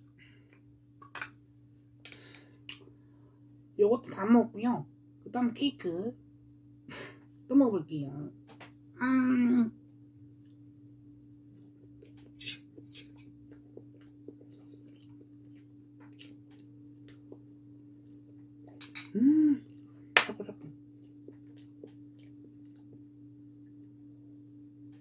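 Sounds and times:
electrical hum: 0.0 - 25.0
chewing soft cake: 9.8 - 24.1.

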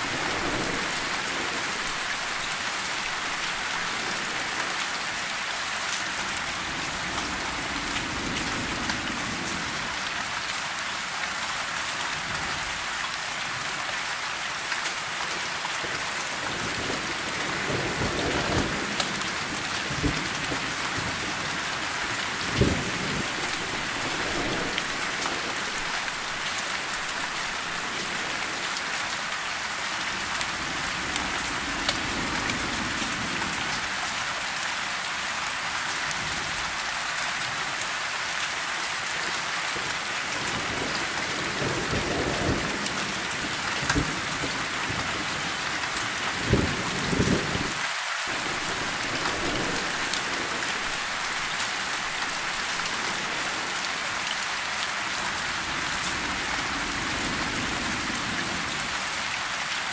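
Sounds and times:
low rumbles of thunder: 0.0 - 2.5, 16.5 - 28.6
steady rain falling: 0.0 - 59.9.

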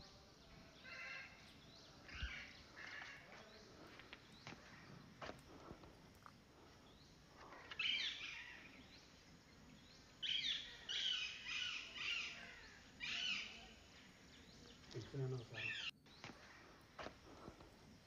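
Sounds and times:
faint outdoor hiss: 0.0 - 18.0
high chirping calls: 6.9 - 16.6.

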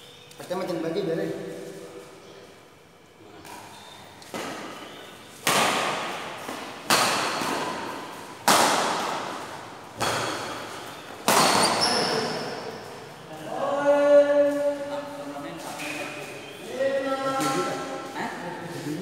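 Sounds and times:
badminton racket hitting shuttlecock: 4.2 - 12.6.

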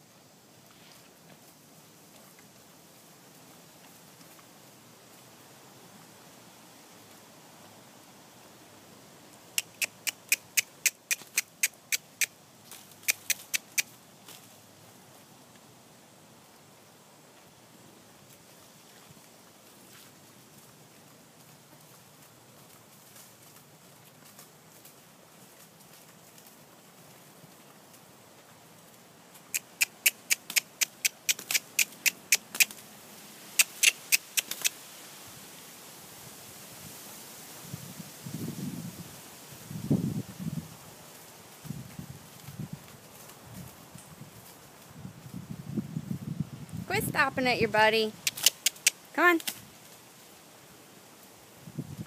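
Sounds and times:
person clucking tongue clicks: 9.6 - 12.4, 13.0 - 13.9, 29.5 - 32.8, 33.6 - 34.8, 48.2 - 49.0.

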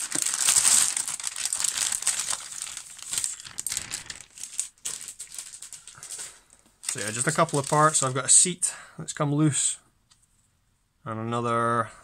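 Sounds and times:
plastic bag crinkling: 0.0 - 8.4.

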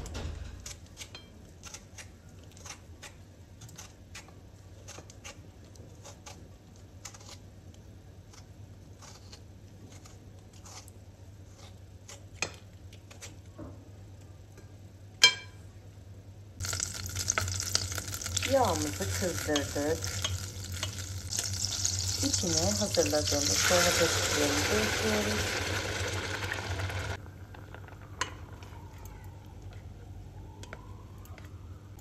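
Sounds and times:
peeler scraping tomato skin: 0.6 - 7.5, 8.2 - 12.4
oil sizzling in a pan: 16.6 - 27.2.

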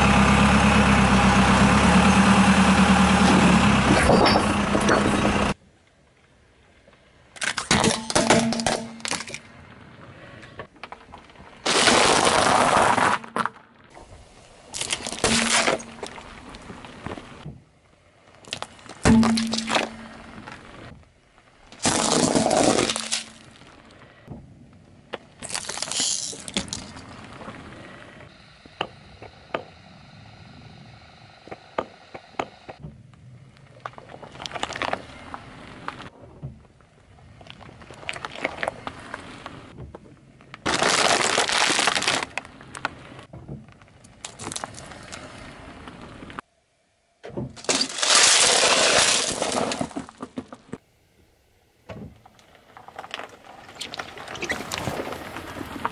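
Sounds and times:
loud crackling: 11.6 - 13.3, 40.6 - 42.8
tyre crushing objects: 11.6 - 13.6, 21.8 - 23.5, 47.5 - 50.8.

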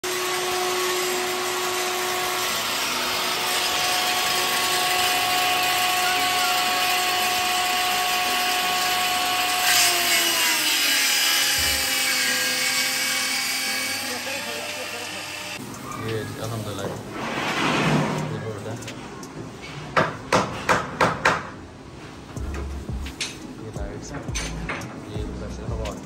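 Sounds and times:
electric power tool whining: 0.0 - 16.6.

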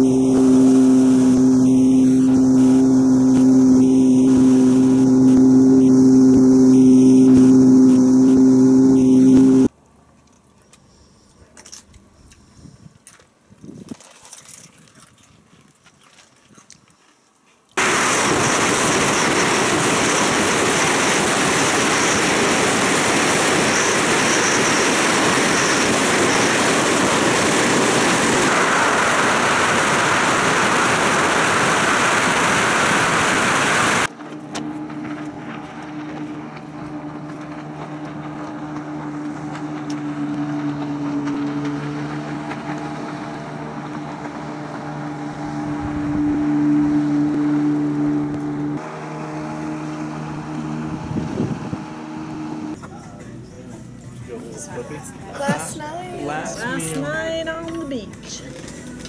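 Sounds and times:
motorboat engine hum: 0.0 - 9.8, 17.8 - 54.4
wind rushing over microphone: 50.8 - 52.0.

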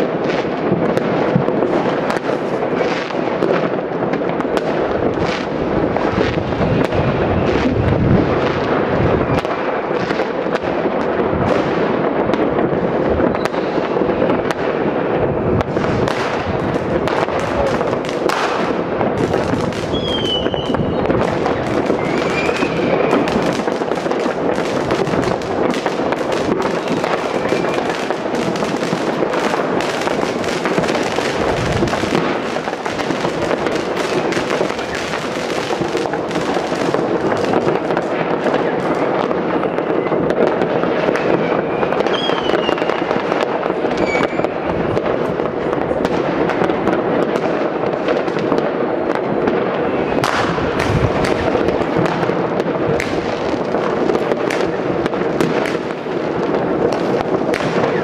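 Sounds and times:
distant firecrackers and fireworks: 0.0 - 58.0
whistling tones: 19.9 - 21.1, 21.9 - 23.3, 42.1 - 42.9, 44.0 - 44.5.

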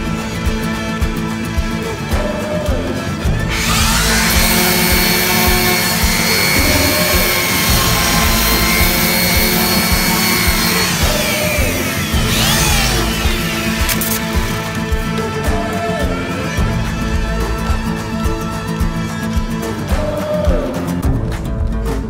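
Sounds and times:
background music: 0.0 - 22.0
power tool whining: 3.4 - 15.4.

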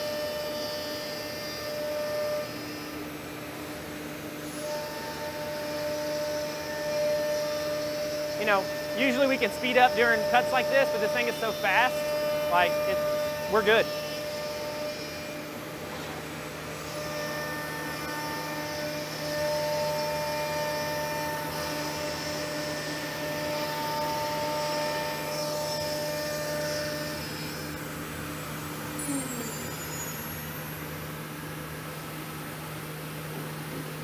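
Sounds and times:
router spindles whining: 4.5 - 15.6, 16.6 - 32.2.

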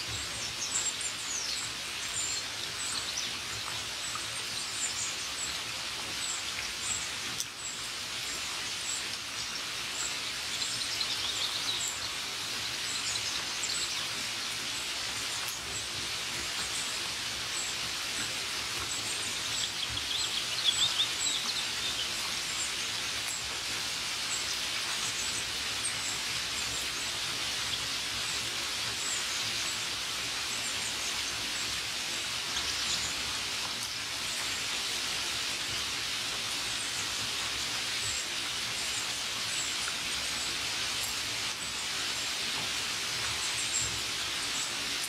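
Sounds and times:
burst of birdsong: 0.0 - 42.4
steady rain falling: 0.0 - 45.0
birds chirping: 17.6 - 23.2.

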